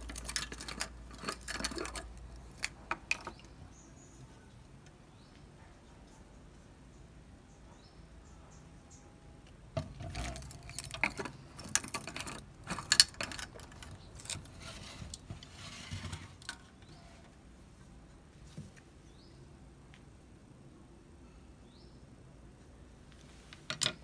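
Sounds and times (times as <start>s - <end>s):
objects clicking on wooden bench: 0.0s - 3.6s, 9.8s - 16.9s, 23.6s - 24.0s.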